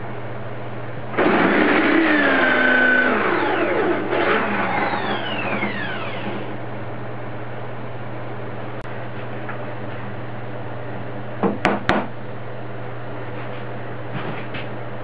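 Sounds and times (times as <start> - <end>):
electric drill whining: 1.2 - 6.6.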